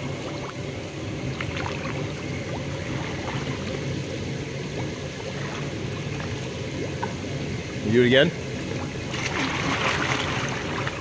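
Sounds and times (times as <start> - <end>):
hot tub jets bubbling water: 0.0 - 11.0
small water splashes: 1.2 - 3.9, 5.2 - 7.2, 8.5 - 11.0.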